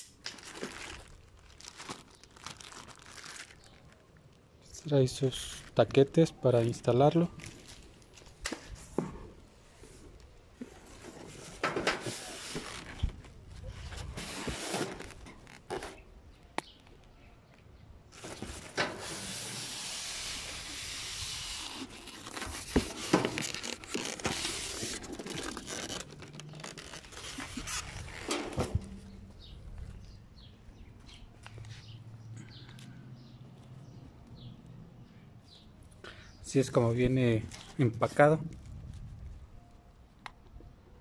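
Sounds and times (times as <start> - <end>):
plastic wrap crinkling: 0.1 - 4.5, 7.0 - 8.4, 21.4 - 28.3.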